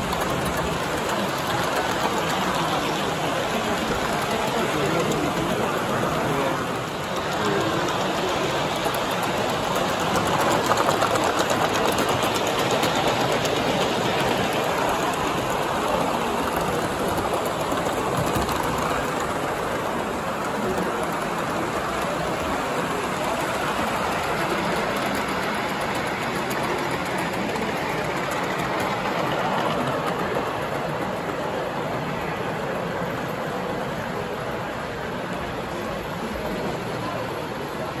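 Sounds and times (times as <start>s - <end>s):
model steam train exhaust beats: 0.0s - 38.0s
wheels rattling on track: 0.0s - 38.0s.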